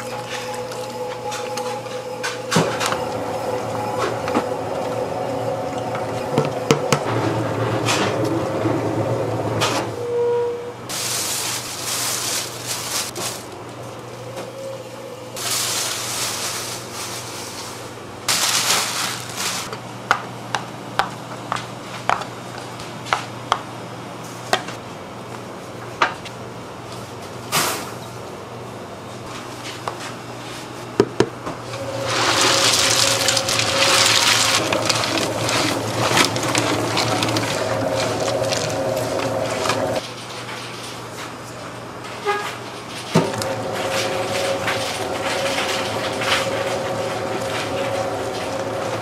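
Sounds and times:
dough mixer motor whine: 0.0s - 9.8s, 31.7s - 40.0s, 43.2s - 49.0s
dough churning and slapping: 31.8s - 40.1s.

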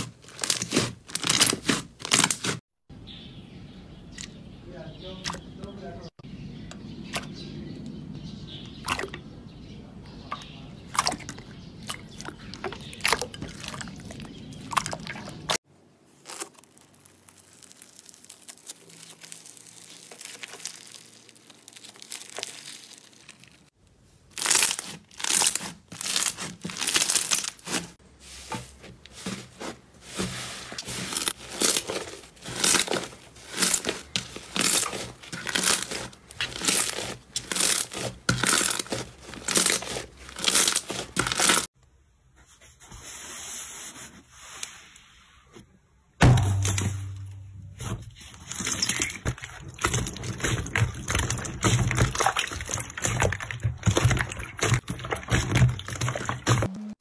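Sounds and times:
slime squishing and crackling: 0.0s - 2.6s, 10.9s - 41.8s, 46.2s - 56.9s.

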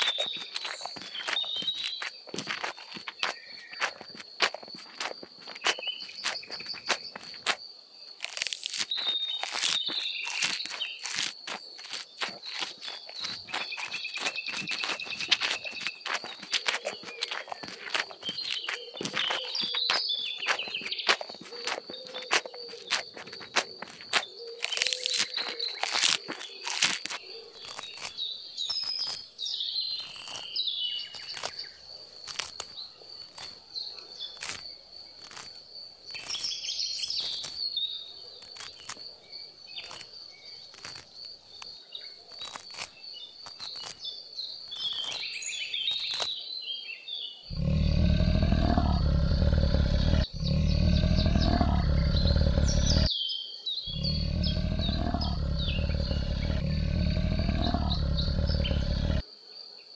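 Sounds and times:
birds chirping: 0.0s - 31.8s, 47.3s - 53.1s, 53.8s - 59.2s
high insect tone: 0.0s - 59.9s
deep animal call: 47.5s - 53.1s, 53.9s - 59.2s.

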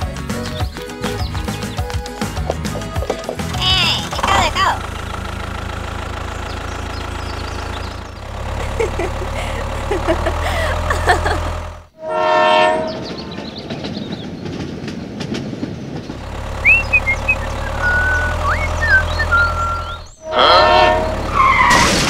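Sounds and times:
train wheels rumbling and clicking: 0.0s - 12.0s, 12.8s - 20.4s
low engine drone: 2.5s - 13.4s, 16.1s - 22.0s
train horn blast: 12.0s - 13.4s, 20.2s - 21.8s.

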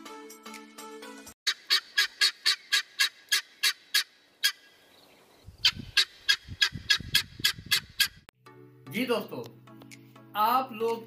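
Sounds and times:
guineafowl harsh calls: 1.5s - 4.8s, 5.6s - 8.2s.

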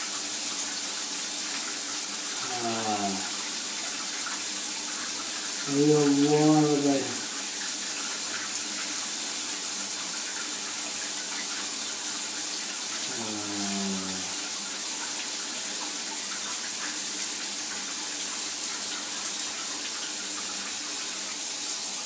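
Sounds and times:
shower water running into bathtub: 0.0s - 22.0s
man moaning: 2.4s - 3.3s, 5.7s - 7.2s, 13.1s - 14.4s.

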